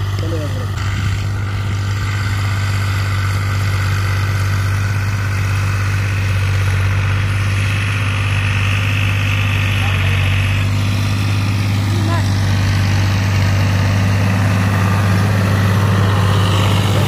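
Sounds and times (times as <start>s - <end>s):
tractor diesel engine under load: 0.0s - 17.0s.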